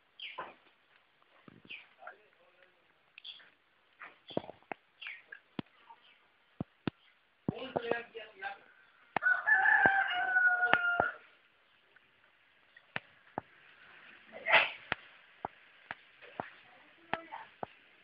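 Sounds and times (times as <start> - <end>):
rooster crowing: 9.2 - 11.3.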